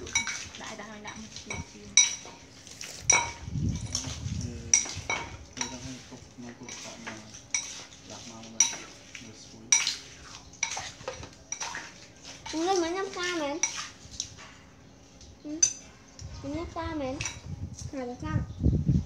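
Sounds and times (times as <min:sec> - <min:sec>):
cutlery clinking on plates: 0:00.0 - 0:09.0, 0:09.7 - 0:10.0, 0:10.6 - 0:11.9.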